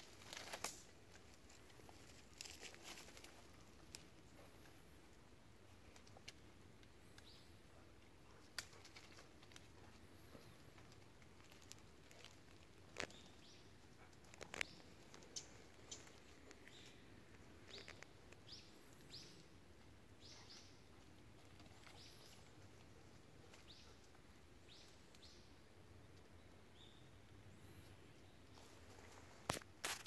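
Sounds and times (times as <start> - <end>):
dry twigs snapping: 0.0 - 4.1, 8.5 - 9.7, 10.6 - 13.4, 14.1 - 18.4.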